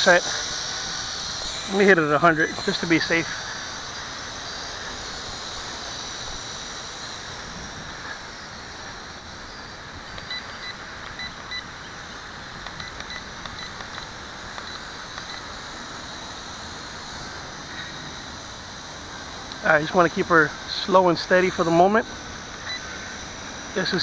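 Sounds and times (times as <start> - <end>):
drone propellers whining: 0.0 - 24.0
short electronic beeps: 12.8 - 13.8.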